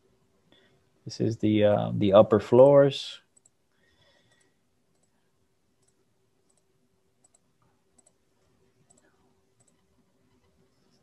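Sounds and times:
computer mouse clicks: 0:03.3 - 0:03.6, 0:04.3 - 0:05.2, 0:05.8 - 0:08.2, 0:08.8 - 0:11.0.

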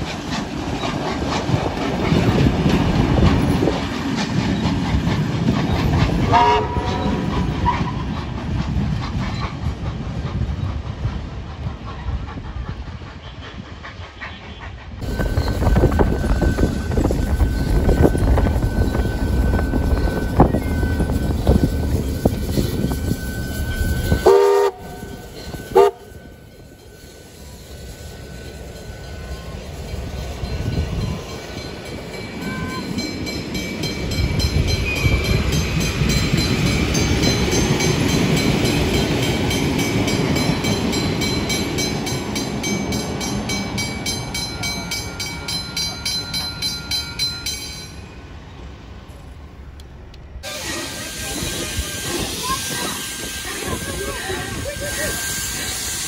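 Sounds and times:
train rumble passing: 0:00.0 - 0:56.0
train horn blasts: 0:06.3 - 0:07.8, 0:24.1 - 0:25.0, 0:25.7 - 0:26.2.

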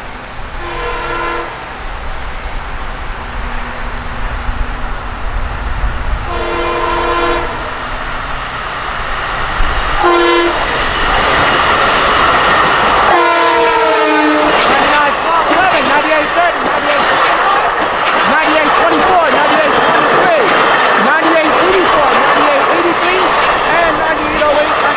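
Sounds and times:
train wheels on rails: 0:00.0 - 0:24.9
train horn blasts: 0:00.6 - 0:01.6, 0:06.2 - 0:07.7, 0:10.0 - 0:10.6, 0:13.1 - 0:14.6.

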